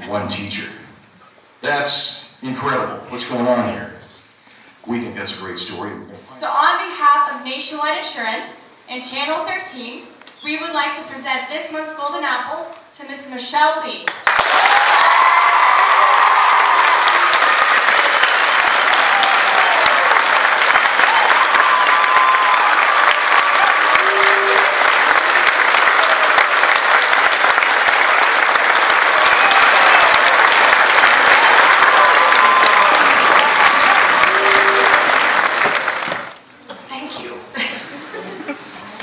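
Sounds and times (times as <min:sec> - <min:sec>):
crowd clapping: 0:14.1 - 0:36.4.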